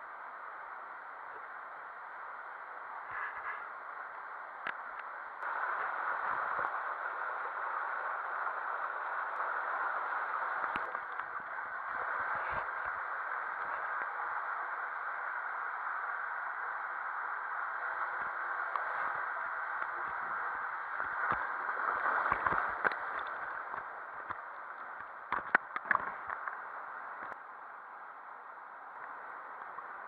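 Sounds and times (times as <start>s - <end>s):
water rushing in tube slide: 5.3s - 27.4s.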